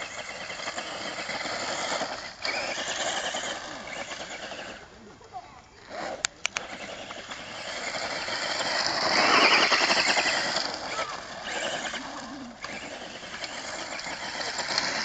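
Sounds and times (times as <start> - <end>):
electric motor whining: 0.0 - 5.0, 5.8 - 15.0.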